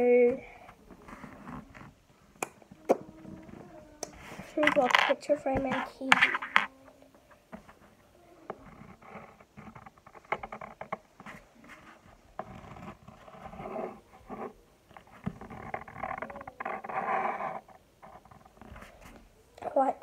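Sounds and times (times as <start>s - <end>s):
pen scratching on paper: 11.3s - 17.8s.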